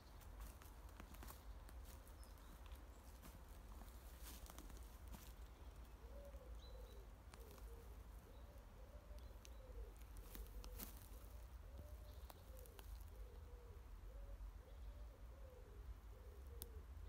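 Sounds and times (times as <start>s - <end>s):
pigeon cooing: 6.0s - 16.9s
light clicks and crackles: 9.2s - 11.2s.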